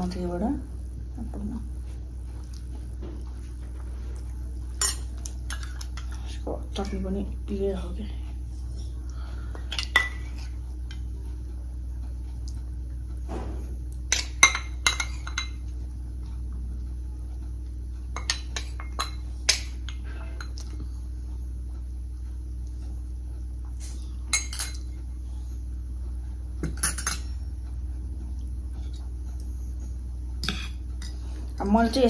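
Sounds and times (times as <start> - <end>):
metal spoon clinking in bowl: 24.3 - 24.9.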